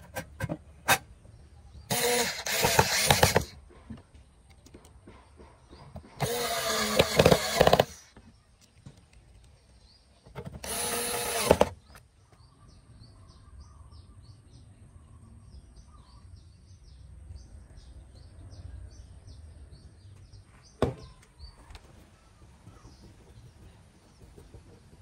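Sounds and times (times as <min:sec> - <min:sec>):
small birds chirping: 0:00.0 - 0:25.0
electric screwdriver whirring: 0:01.9 - 0:03.6, 0:06.2 - 0:08.1, 0:10.5 - 0:12.0
knock: 0:20.8 - 0:21.2.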